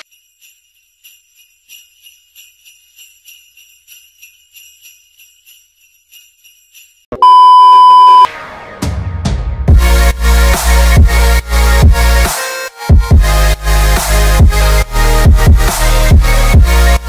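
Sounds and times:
jingle bells shaken: 0:00.0 - 0:07.1, 0:13.0 - 0:17.0
loud steady beep: 0:07.2 - 0:08.3
electronic music: 0:09.7 - 0:17.0.

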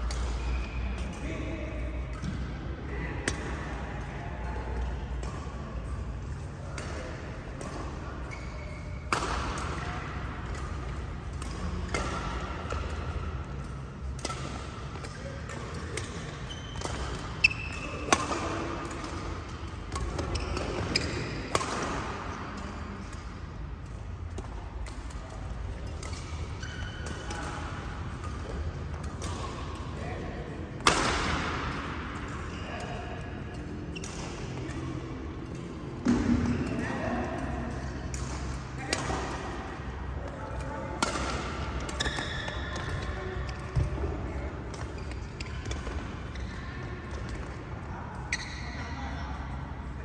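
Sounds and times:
rackets striking shuttlecock: 0:08.8 - 0:30.0, 0:30.7 - 0:32.5, 0:40.3 - 0:44.0.

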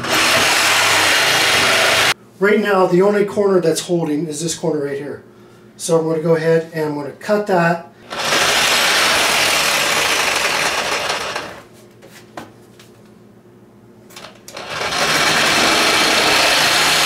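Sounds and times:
reciprocating saw cutting countertop: 0:00.0 - 0:02.2, 0:08.1 - 0:11.6, 0:14.5 - 0:17.0.

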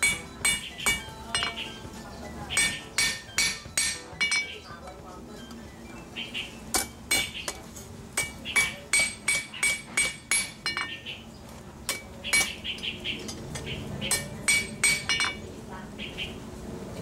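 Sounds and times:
hammer striking metal on anvil: 0:00.0 - 0:01.8, 0:02.5 - 0:04.6, 0:06.7 - 0:07.6, 0:08.2 - 0:11.0, 0:11.9 - 0:12.6, 0:14.0 - 0:15.4.

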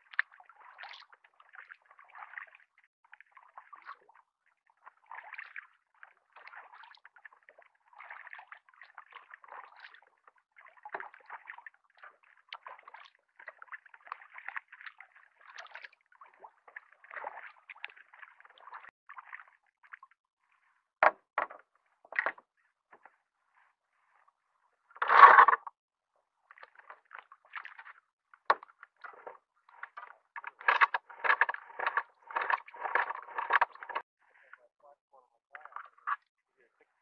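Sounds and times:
water dripping off paddle: 0:00.0 - 0:04.2
paddle dipping through water: 0:00.0 - 0:25.5, 0:26.3 - 0:34.7.

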